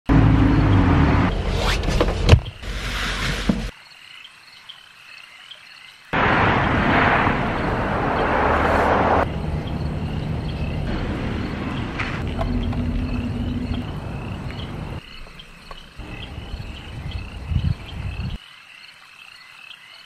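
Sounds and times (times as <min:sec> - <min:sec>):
crickets chirping: 0:03.7 - 0:20.0
loud rushing noise: 0:06.2 - 0:15.0.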